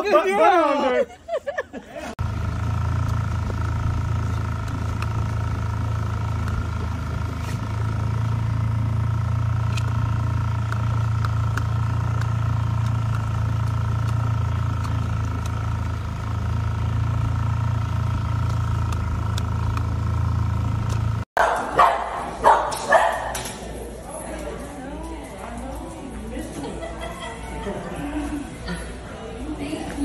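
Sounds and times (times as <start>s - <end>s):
outboard motor humming and whining: 2.2s - 21.3s.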